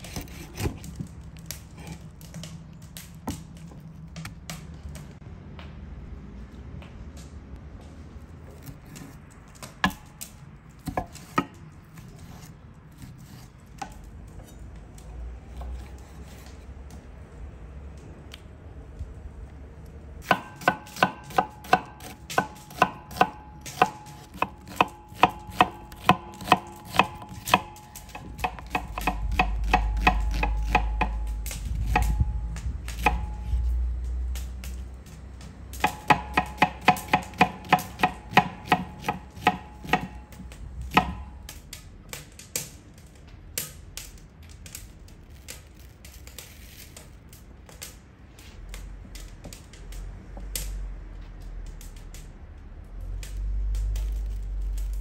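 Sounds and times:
knife chopping on cutting board: 20.2 - 31.2, 32.9 - 33.6, 35.8 - 40.2, 40.9 - 41.2
low rumble: 28.9 - 35.8, 49.8 - 55.0.

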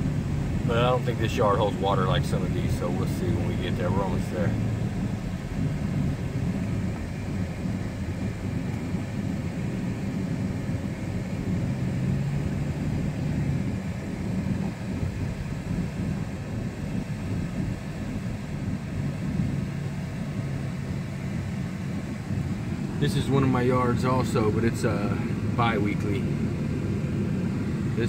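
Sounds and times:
car engine hum: 0.0 - 28.0
road noise inside cab: 0.0 - 28.0.

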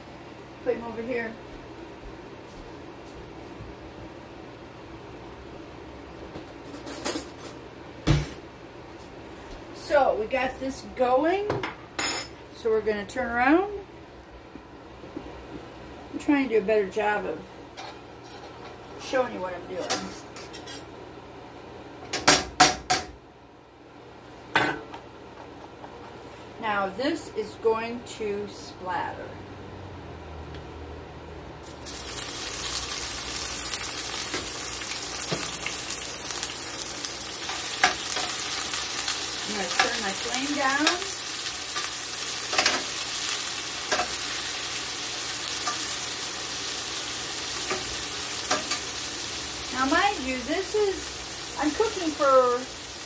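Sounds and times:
vegetables sizzling in a pan: 31.6 - 53.0.

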